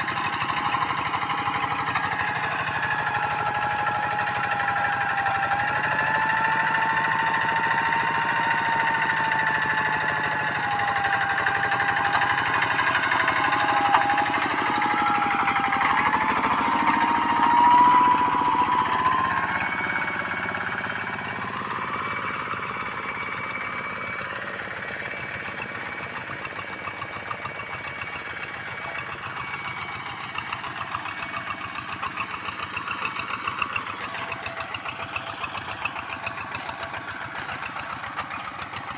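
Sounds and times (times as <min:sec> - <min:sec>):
diesel engine running under load: 0:00.0 - 0:38.9
wavering whine: 0:04.4 - 0:24.4.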